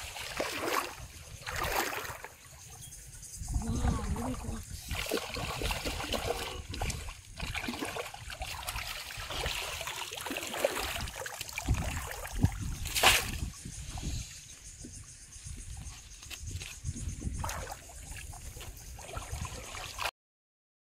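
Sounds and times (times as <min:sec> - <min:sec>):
water splashing and trickling: 0:00.0 - 0:20.1
sharp water slap: 0:04.9 - 0:13.5.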